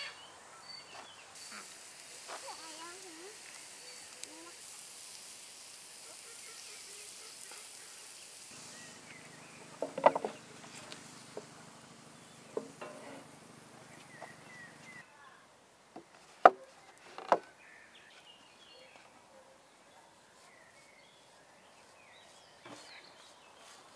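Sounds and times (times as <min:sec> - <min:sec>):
sharp knocks: 0:09.8 - 0:10.4.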